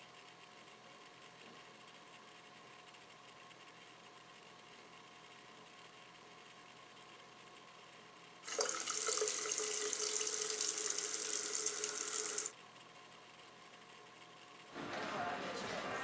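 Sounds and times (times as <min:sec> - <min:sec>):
tap water running onto hands: 0:08.5 - 0:12.5.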